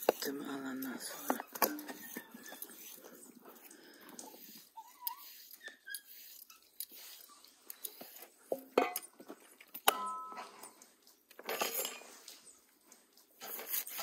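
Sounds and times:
dishes knocking and clinking: 8.5s - 10.8s.

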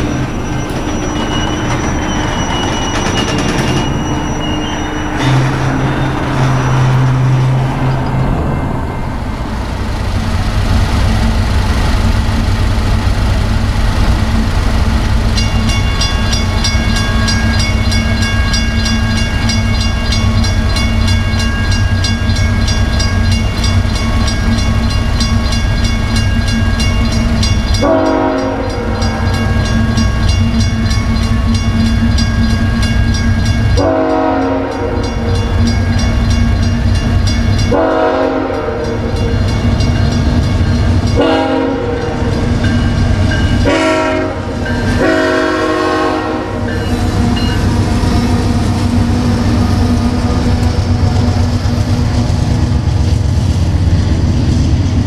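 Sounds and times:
railroad crossing bell: 0.0s - 9.8s, 14.4s - 51.8s
freight train rumble: 0.0s - 55.0s
locomotive horn blasts: 5.0s - 7.6s, 27.8s - 29.6s, 33.8s - 35.3s, 37.7s - 39.3s, 41.2s - 42.3s, 43.6s - 47.5s.

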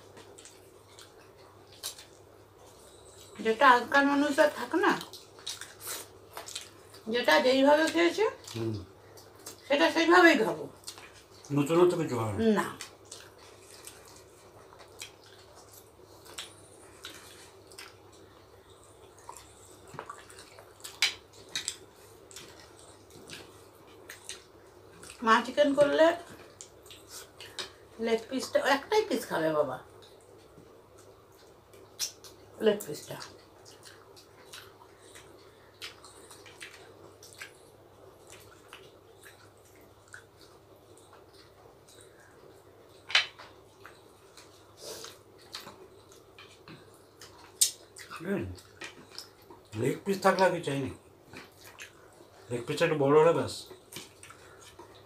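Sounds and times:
people chewing: 0.0s - 3.5s, 4.3s - 7.1s, 7.7s - 9.8s, 10.4s - 28.3s, 29.9s - 55.0s
low steady hum: 0.0s - 55.0s
lip smacks: 30.9s - 32.4s, 43.0s - 49.7s, 53.8s - 55.0s
fingers squishing rice on plates: 53.6s - 55.0s.

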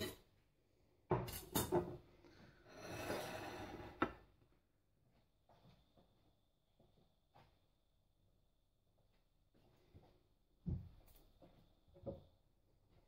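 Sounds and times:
plate sliding across counter: 2.7s - 4.2s.

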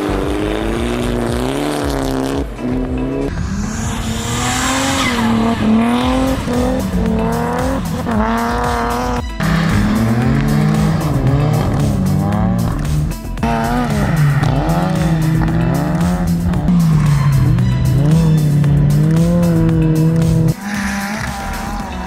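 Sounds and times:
rally car engines revving: 0.0s - 22.0s.

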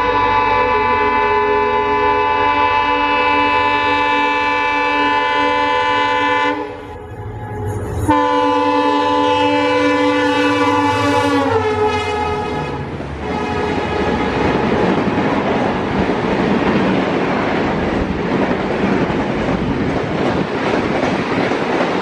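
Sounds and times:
locomotive air horn blasts: 0.0s - 14.8s
train running rumble: 0.0s - 22.0s.

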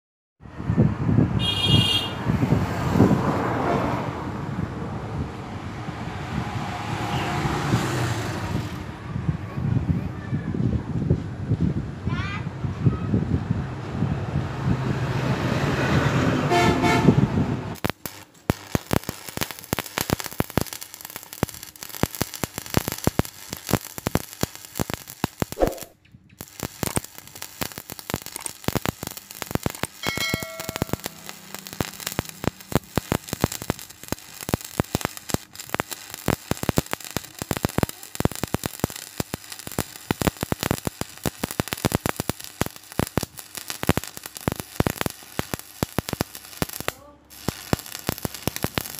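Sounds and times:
welding arc crackling: 17.7s - 48.9s.

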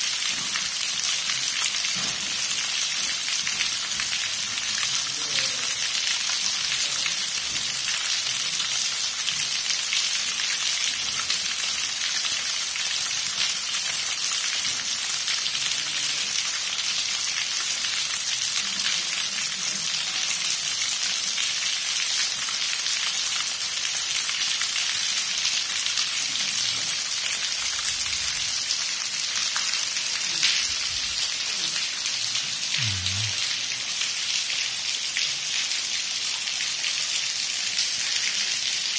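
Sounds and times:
water dripping onto wet rock: 0.2s - 38.9s.

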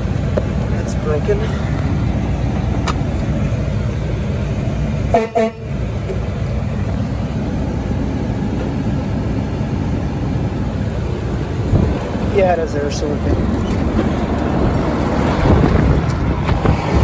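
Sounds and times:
truck engine and road rumble: 0.0s - 17.0s
horn toots: 5.1s - 5.8s.

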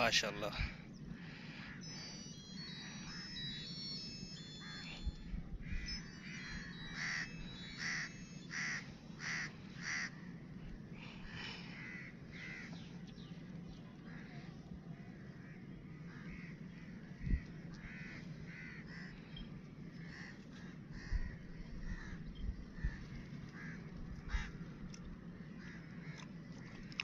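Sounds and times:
steady low hum: 0.0s - 27.0s
crow cawing: 7.0s - 10.2s, 11.7s - 12.8s, 15.4s - 19.2s, 20.0s - 22.2s, 22.8s - 24.6s.

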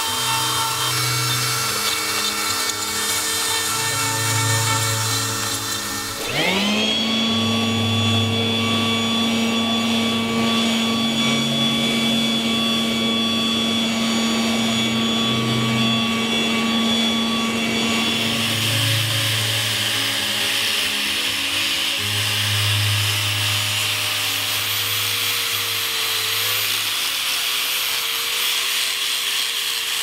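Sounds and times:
angle grinder sanding wood: 0.0s - 30.0s
electric leaf blower whining: 0.0s - 30.0s.

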